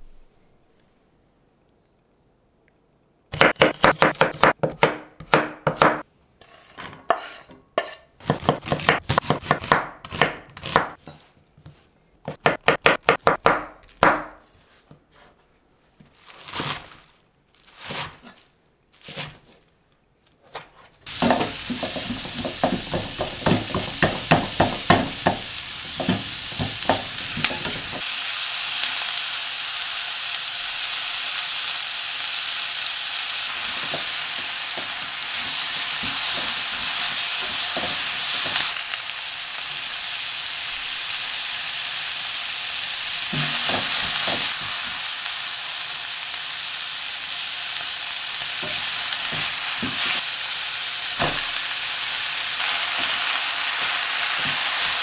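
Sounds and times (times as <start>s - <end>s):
knife chopping on wooden board: 3.4s - 6.0s, 7.1s - 11.0s, 21.1s - 28.0s
vegetables sizzling in frying pan: 21.1s - 55.0s.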